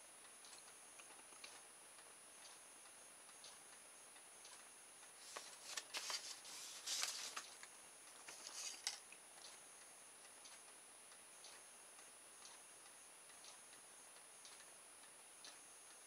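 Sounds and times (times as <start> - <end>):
faint clock ticking: 0.0 - 16.0
paper rustling: 5.2 - 9.0
small plastic parts handled: 8.3 - 9.0.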